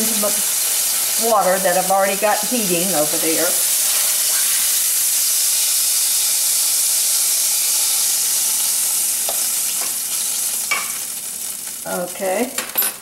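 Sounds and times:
oil sizzling in a skillet: 0:00.0 - 0:12.8.

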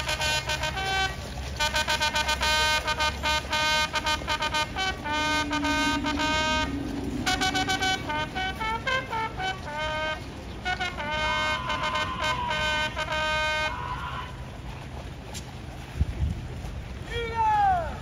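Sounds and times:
trumpet call: 0:00.0 - 0:14.3.

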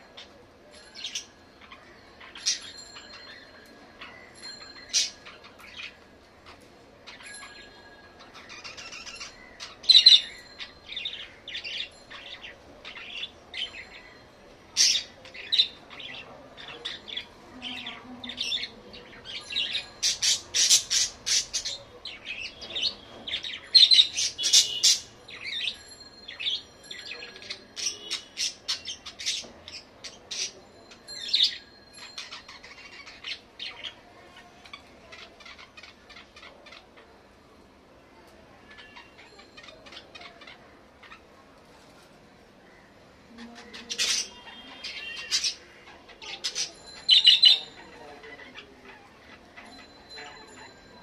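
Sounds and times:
budgerigars chirping: 0:18.6 - 0:25.1.

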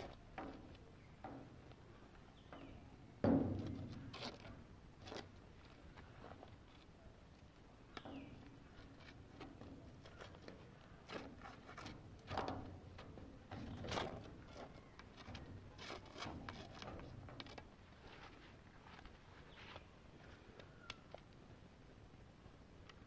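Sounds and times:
faint scrapes and taps: 0:07.9 - 0:21.4.

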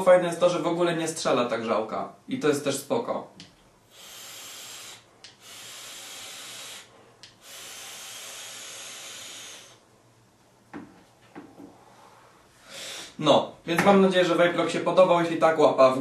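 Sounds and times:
short puffs of breath: 0:03.8 - 0:09.9, 0:11.8 - 0:13.2
breath hissing through vape tank: 0:03.9 - 0:09.8.

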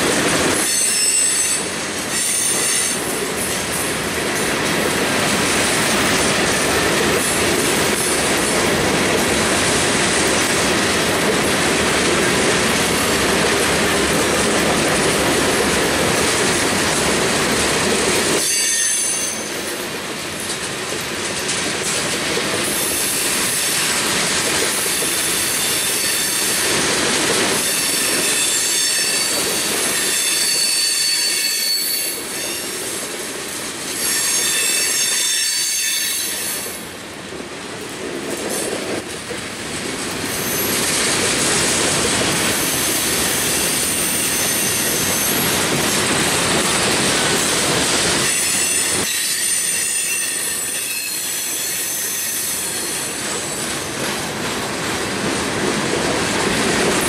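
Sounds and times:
high-pitched wheel squeal: 0:00.6 - 0:03.0, 0:18.4 - 0:19.5, 0:27.6 - 0:32.7, 0:34.0 - 0:36.6, 0:48.2 - 0:53.1.

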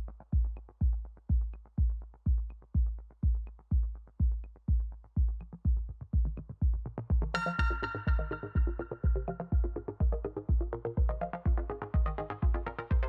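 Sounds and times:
drum machine kick beat: 0:00.0 - 0:13.0
electronic music: 0:04.4 - 0:13.0.

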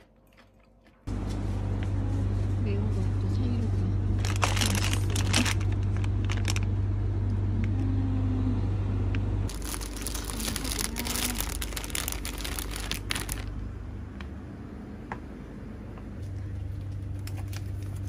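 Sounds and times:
low hum: 0:01.1 - 0:18.0
plastic bags crinkling: 0:04.2 - 0:06.7, 0:09.5 - 0:13.6.

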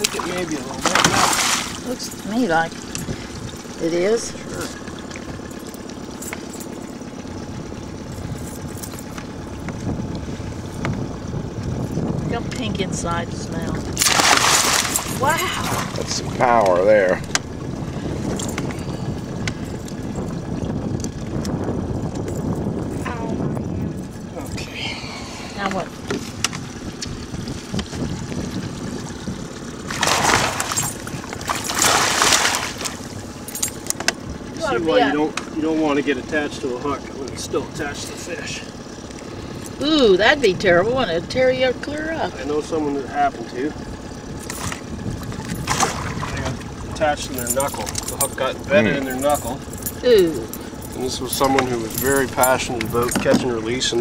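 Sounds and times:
fish splashing in net: 0:00.0 - 0:01.9, 0:14.0 - 0:16.0, 0:29.9 - 0:33.0, 0:45.6 - 0:46.4
boat motor idling: 0:00.0 - 0:54.0
low steady rumble: 0:00.0 - 0:54.0.

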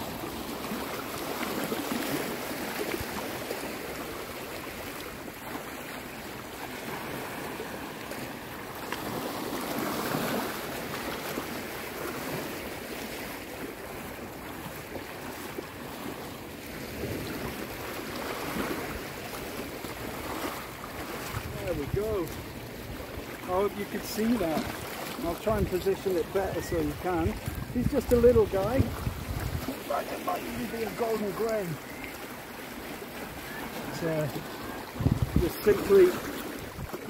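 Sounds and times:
person wading through surf: 0:00.0 - 0:37.0
sea water sloshing: 0:00.0 - 0:37.0
wind on microphone: 0:26.6 - 0:29.9, 0:34.9 - 0:37.0.

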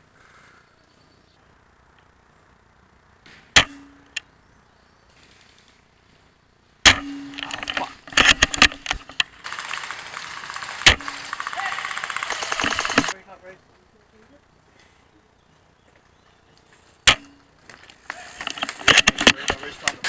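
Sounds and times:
airsoft rifle shots: 0:03.2 - 0:04.2, 0:06.8 - 0:13.2, 0:17.1 - 0:17.4, 0:18.2 - 0:20.0
sharp mechanical clicks: 0:06.9 - 0:13.2
rustling handling noise: 0:15.6 - 0:20.0.

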